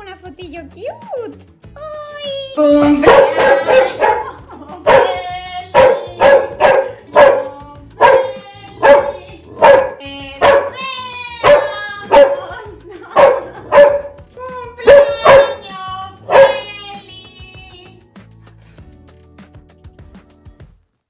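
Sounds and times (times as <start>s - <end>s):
dog barking: 3.0s - 5.2s, 5.8s - 10.8s, 11.4s - 14.2s, 14.8s - 15.6s, 16.2s - 16.7s.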